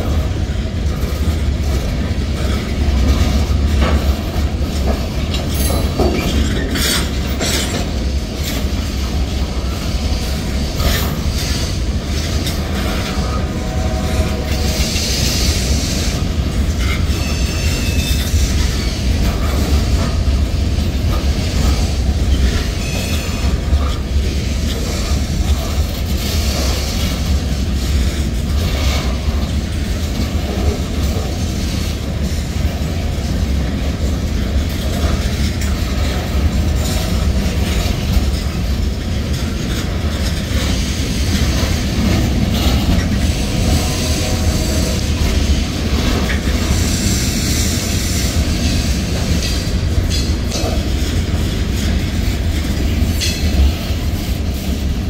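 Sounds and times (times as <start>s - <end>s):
clicking over rail joints: 0.0s - 55.0s
train wheels rumbling on rails: 0.0s - 55.0s
wheel squeals: 16.8s - 19.0s, 22.5s - 23.6s.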